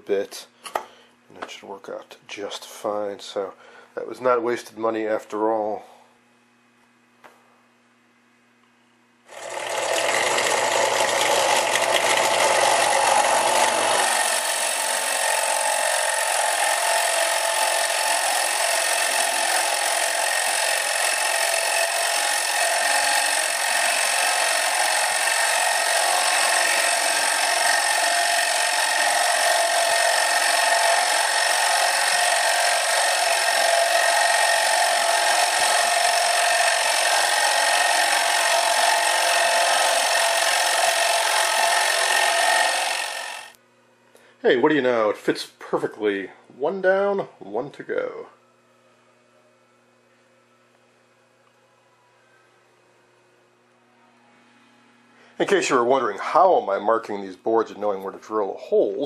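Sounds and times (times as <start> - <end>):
drill press boring wood: 9.3 - 43.6.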